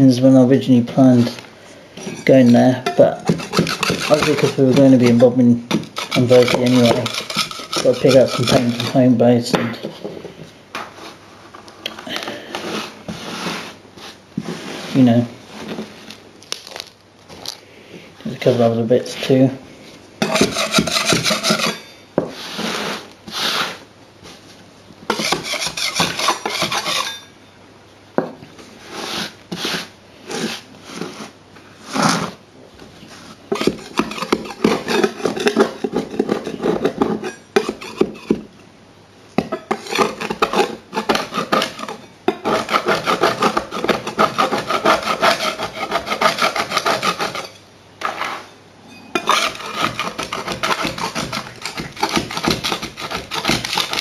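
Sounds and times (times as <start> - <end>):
metal scraper scraping grit: 2.0 - 9.1, 20.2 - 23.8, 25.1 - 27.3, 28.9 - 31.3, 33.5 - 38.4, 39.4 - 48.5, 49.2 - 54.0.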